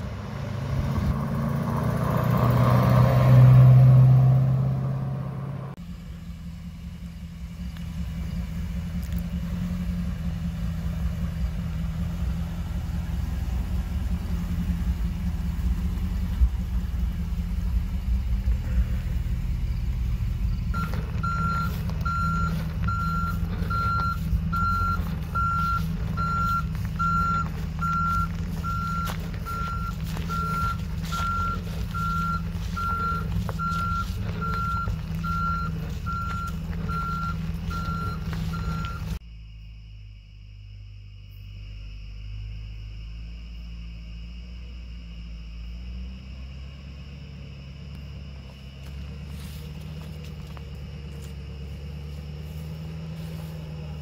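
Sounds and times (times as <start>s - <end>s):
truck engine running: 0.0s - 39.2s, 45.6s - 54.0s
reverse alarm beeping: 20.7s - 39.2s.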